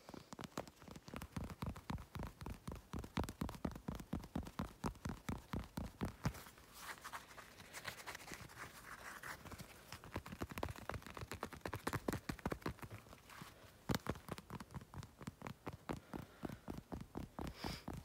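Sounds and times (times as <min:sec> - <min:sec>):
fingertips tapping rapidly: 0:00.0 - 0:18.0
scratchy rustle: 0:05.8 - 0:14.7.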